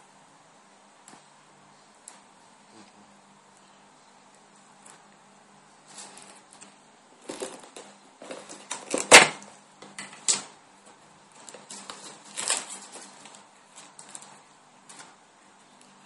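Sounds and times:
cardboard and paper rustling: 5.8 - 9.4, 10.3 - 15.2.

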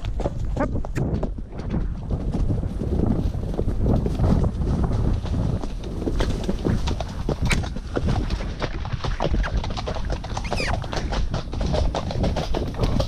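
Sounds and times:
horse snorting and blowing: 5.8 - 13.0.

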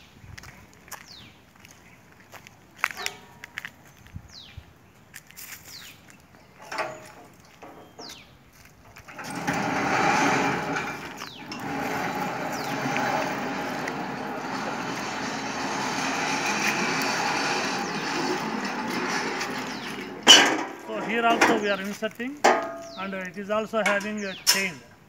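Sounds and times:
vehicle engine running: 9.6 - 20.2.

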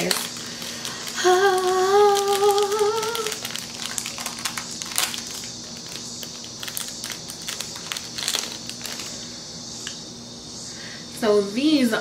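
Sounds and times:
plastic packaging crinkling: 0.0 - 9.3.

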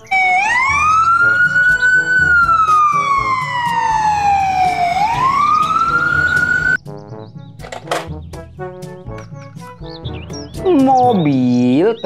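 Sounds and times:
ambulance siren wailing: 0.0 - 6.8.

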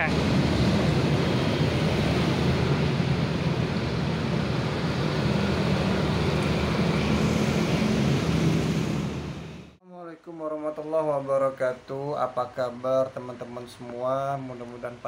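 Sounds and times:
road traffic noise: 0.0 - 9.8.

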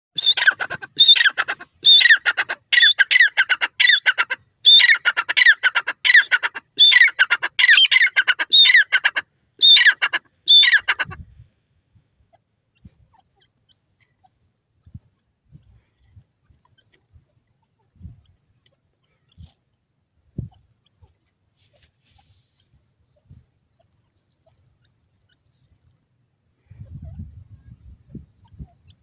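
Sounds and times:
francolin calling: 0.2 - 11.2.

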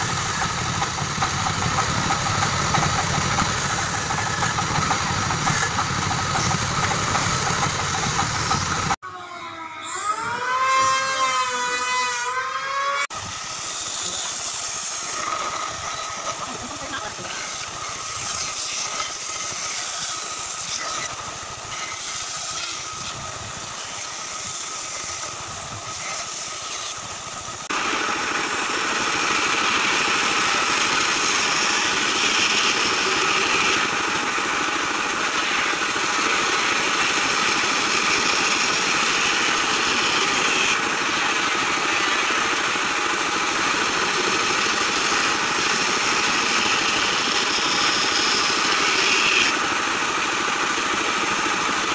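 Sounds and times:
bandsaw motor hum: 0.0 - 51.9
saw blade rasping in wood: 13.6 - 27.8, 28.8 - 50.1.

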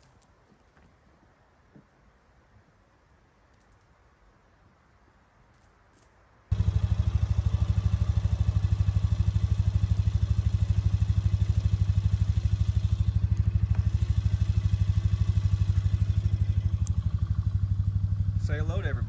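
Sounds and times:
small engine running: 6.5 - 19.0.

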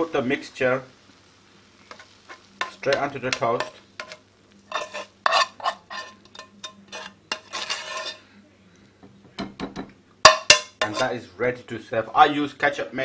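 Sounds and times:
metal spoon scraping frying pan: 1.9 - 8.3, 10.3 - 11.2.

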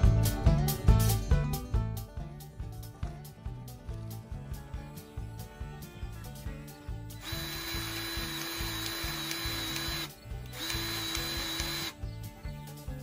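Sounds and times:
background music with steady beat: 0.0 - 13.0
small power tool motor whine: 7.2 - 12.0.

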